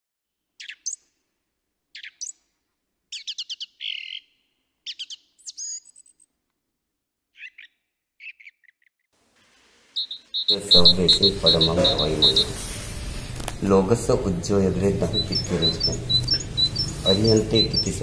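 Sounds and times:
bird chirps and trills: 0:00.6 - 0:01.1, 0:01.9 - 0:02.4, 0:03.1 - 0:06.3, 0:07.3 - 0:09.0, 0:10.0 - 0:13.3, 0:14.6 - 0:18.0.

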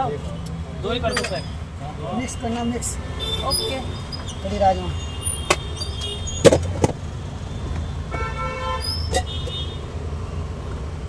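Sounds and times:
traffic rumble: 0:00.0 - 0:11.0
vehicle horn: 0:08.1 - 0:09.8.

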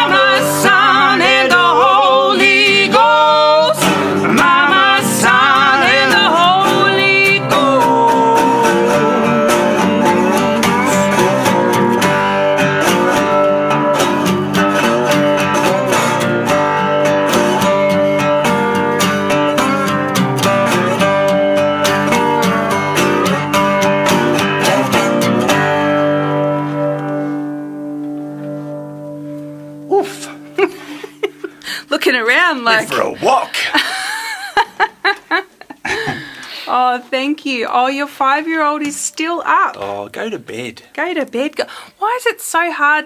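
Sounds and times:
person singing with vibrato: 0:00.0 - 0:13.4
acoustic guitar strumming: 0:00.0 - 0:35.3.

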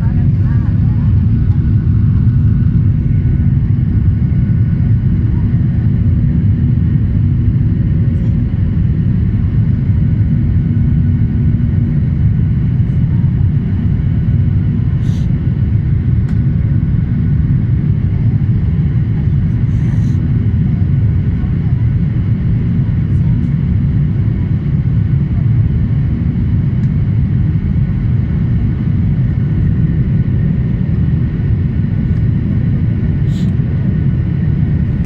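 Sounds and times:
airliner cabin drone: 0:00.0 - 0:35.0.

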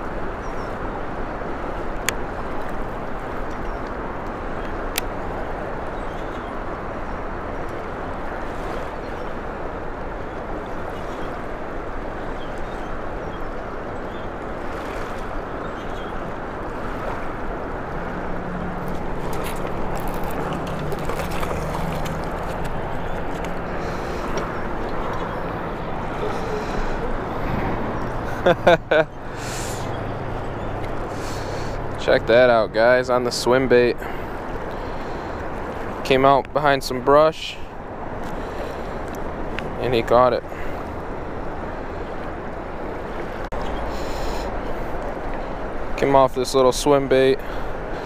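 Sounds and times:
boat rushing over water: 0:00.0 - 0:48.0
low motor hum: 0:14.9 - 0:32.3.

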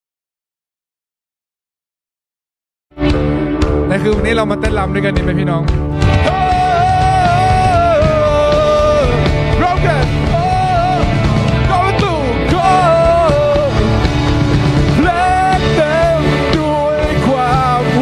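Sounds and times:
bass guitar: 0:02.9 - 0:18.0
pounding drums: 0:03.1 - 0:18.0
person singing: 0:06.0 - 0:14.2, 0:14.8 - 0:18.0.

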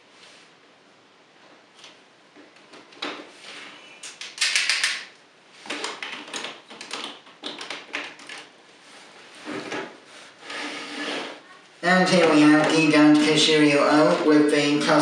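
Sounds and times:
plastic toy parts clicking: 0:04.0 - 0:05.1.

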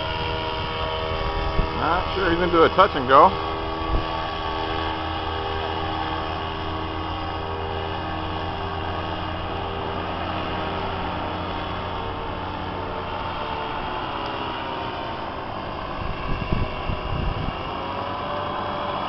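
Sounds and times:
paramotor engine droning: 0:00.0 - 0:19.0.

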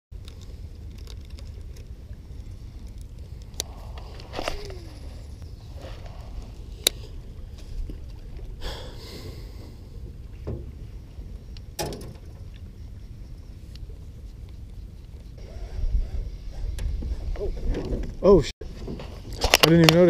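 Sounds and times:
fishing gear clicks and knocks: 0:00.2 - 0:05.2, 0:18.9 - 0:20.0
wind rumbling on microphone: 0:00.2 - 0:19.7.

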